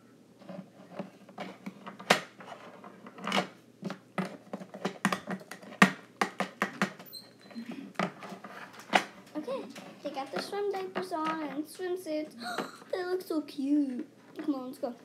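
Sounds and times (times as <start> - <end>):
plastic toys clicking on wood: 4.2 - 7.0.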